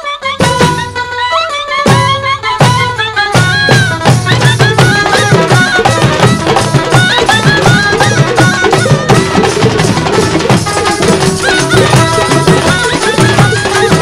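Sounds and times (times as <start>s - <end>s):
folk melody: 0.0s - 14.0s
hand drum strokes: 3.4s - 14.0s.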